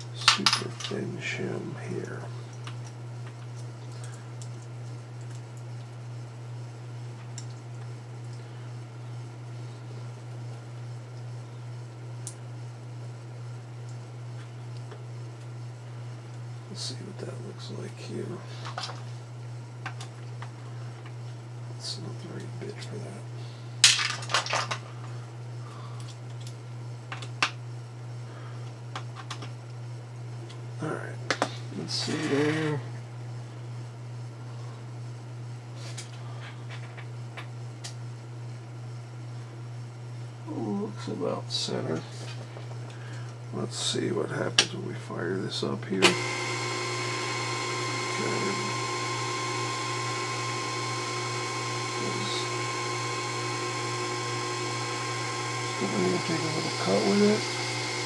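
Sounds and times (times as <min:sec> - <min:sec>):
steady low hum: 0:00.0 - 0:58.0
lathe motor whining hum: 0:31.7 - 0:32.9, 0:46.0 - 0:58.0.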